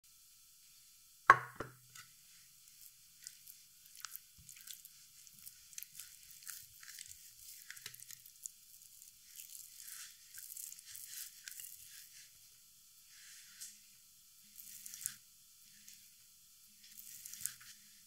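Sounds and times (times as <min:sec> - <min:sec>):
sticky clicks of raw skin: 0:03.2 - 0:08.3.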